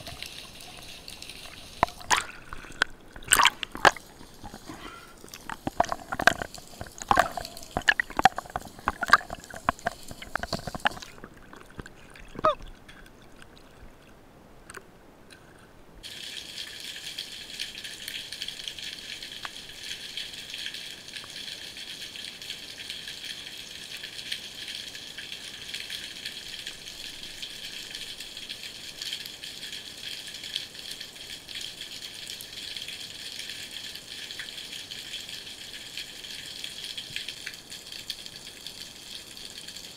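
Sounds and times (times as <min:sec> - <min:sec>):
gurgling bubbles: 0:00.0 - 0:14.2
underwater clicks and knocks: 0:01.8 - 0:13.5.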